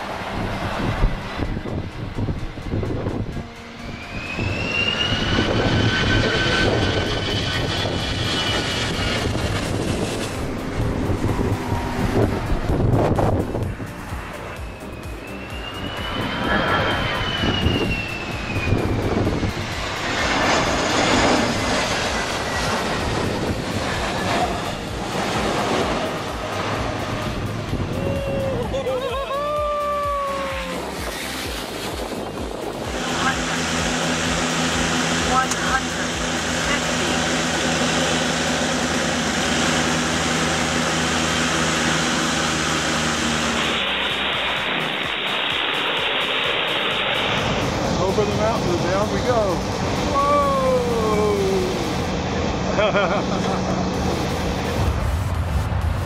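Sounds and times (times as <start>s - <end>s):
hum tones: 0.0s - 29.1s
aircraft engines droning: 0.0s - 56.0s
jet airliner rumbling: 0.0s - 56.0s
loud rushing noise: 0.0s - 56.0s.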